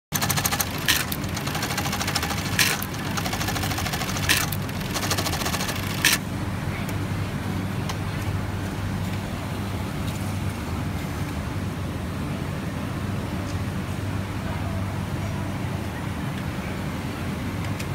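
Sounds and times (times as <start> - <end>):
sewing machine clack: 0.1 - 6.2
sewing machine stitching: 0.1 - 6.2.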